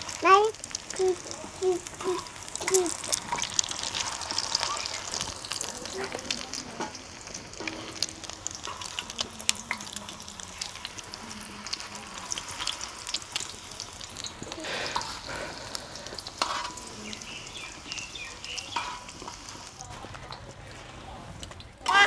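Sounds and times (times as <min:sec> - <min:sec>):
patties sizzling in oil: 0:00.0 - 0:22.0
spatula and spoon scraping griddle: 0:00.8 - 0:10.0, 0:14.1 - 0:21.2.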